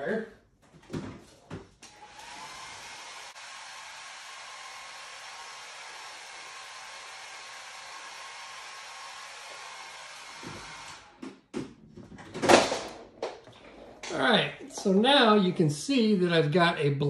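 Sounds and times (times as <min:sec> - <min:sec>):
hair dryer blowing: 0:01.9 - 0:11.2.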